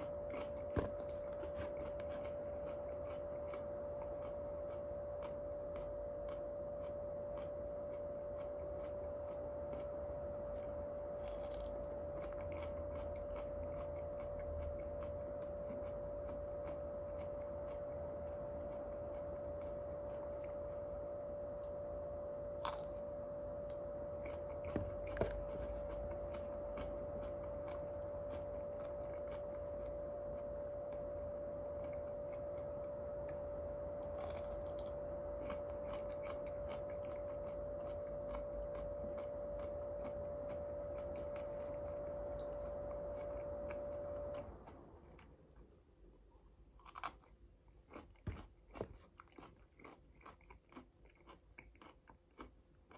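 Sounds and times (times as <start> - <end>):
okra being chewed: 0.0 - 45.9, 46.7 - 52.9
steady hum: 0.0 - 52.9
crisp crunches: 10.5 - 16.0, 22.6 - 23.1, 34.0 - 44.0.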